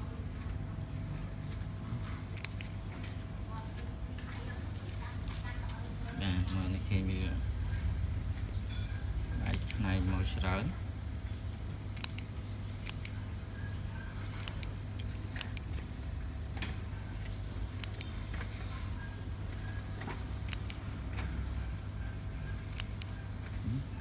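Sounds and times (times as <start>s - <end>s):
scissors snipping: 2.4s - 2.8s, 9.4s - 9.8s, 12.0s - 13.2s, 14.4s - 15.9s, 17.8s - 18.1s, 20.4s - 20.8s, 22.7s - 23.2s.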